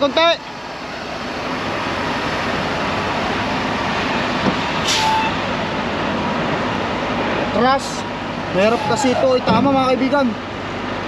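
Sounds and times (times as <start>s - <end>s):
diesel engine running: 0.0s - 11.0s
air hiss: 4.8s - 5.4s.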